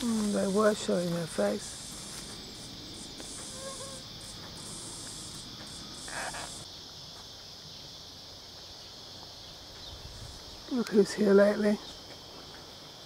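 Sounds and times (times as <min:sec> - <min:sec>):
high insect buzzing: 0:00.0 - 0:06.8
cicadas droning: 0:00.0 - 0:13.0.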